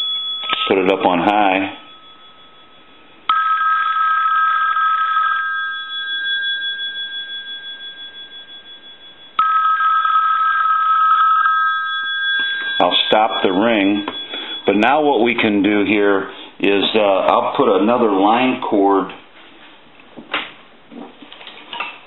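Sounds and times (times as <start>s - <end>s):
telephone bell ringing: 0.0s - 0.7s, 1.3s - 15.2s.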